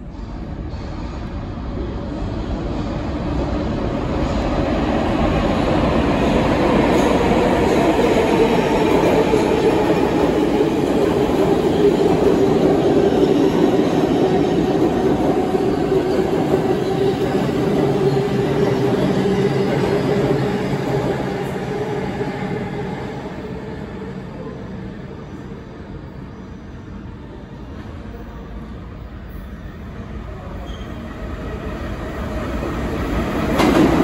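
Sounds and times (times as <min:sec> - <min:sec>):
subway train rumbling on rails: 0:00.0 - 0:34.0.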